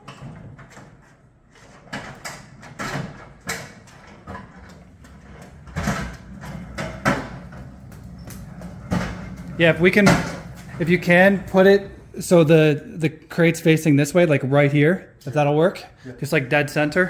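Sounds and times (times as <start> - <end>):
pallet jack rolling on concrete: 0.0 - 12.0.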